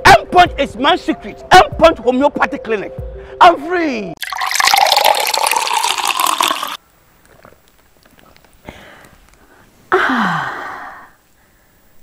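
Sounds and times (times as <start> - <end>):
water pouring into a glass: 4.2 - 6.8.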